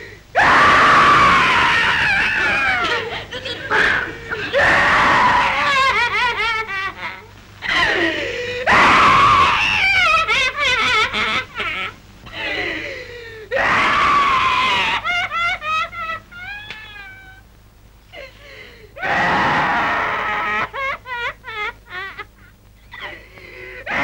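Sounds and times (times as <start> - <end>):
shrill crying bursts: 0.4 - 6.8, 7.6 - 11.7, 13.5 - 17.4, 19.0 - 22.2
woman wailing and sobbing: 14.4 - 17.4.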